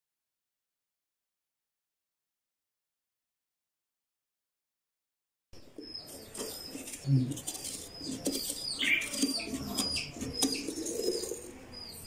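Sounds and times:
small birds chirping: 5.6s - 12.0s
clicks and scrapes hollowing squash: 5.8s - 11.6s.

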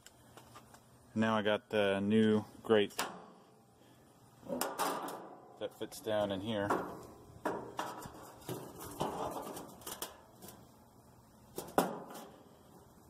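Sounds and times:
iron grate knocking against metal: 6.6s - 9.4s.

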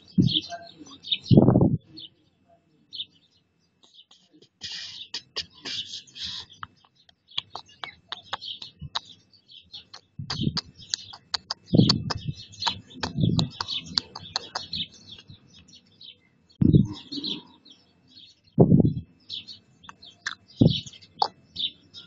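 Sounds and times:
small birds chirping: 0.0s - 22.0s
dull low thumps: 0.2s - 0.4s, 1.3s - 1.8s, 10.2s - 10.7s, 11.6s - 14.2s, 16.6s - 17.0s, 18.6s - 19.1s, 20.6s - 20.9s.

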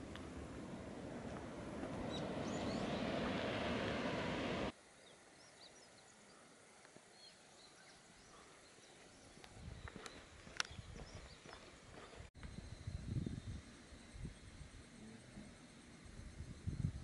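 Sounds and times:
steady rushing outdoor noise: 0.0s - 4.8s
songbird chirps: 0.1s - 3.5s, 4.9s - 12.3s.

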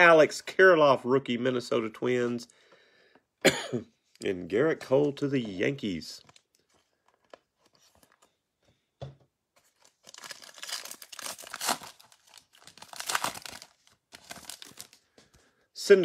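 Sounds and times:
wrapper tearing and crinkling: 9.7s - 15.0s.

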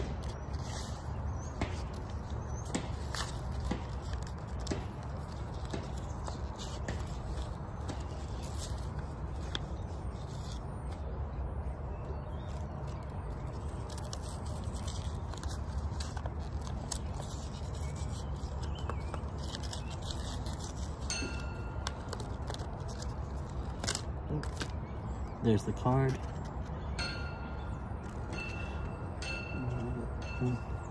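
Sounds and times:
plastic bag crinkling: 12.4s - 24.8s.

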